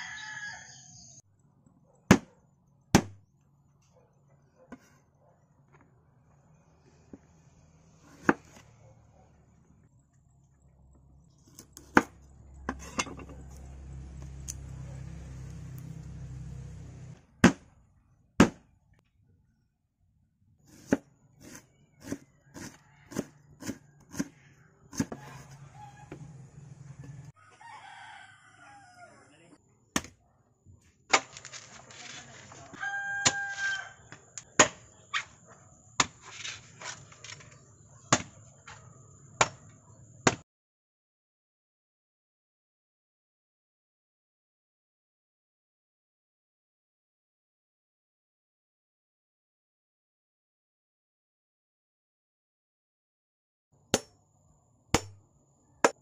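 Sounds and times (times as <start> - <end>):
rooster crowing: 0.0 - 1.2, 22.4 - 23.8, 26.9 - 29.3, 32.6 - 34.1
knife chopping on wooden board: 8.0 - 8.6, 11.5 - 13.2, 20.7 - 25.6, 55.0 - 55.2
knife striking coconut shell: 54.0 - 54.2, 55.0 - 55.2.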